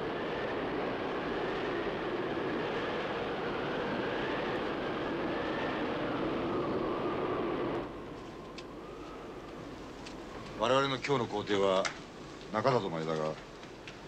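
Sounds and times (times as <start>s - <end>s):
high whistling wind tone: 0.0s - 12.9s
blizzard wind howling: 0.0s - 14.0s.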